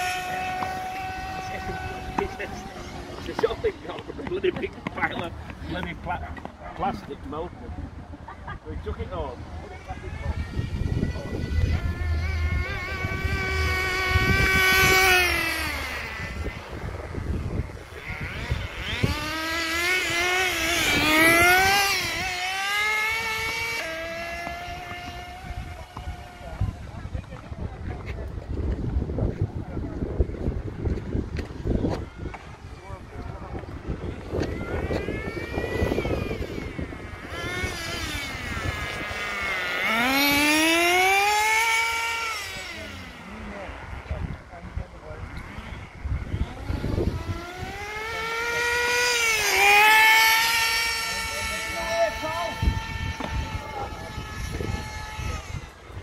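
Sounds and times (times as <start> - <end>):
toy car electric motor whining: 9.7 - 26.4, 33.9 - 44.0, 45.4 - 56.0.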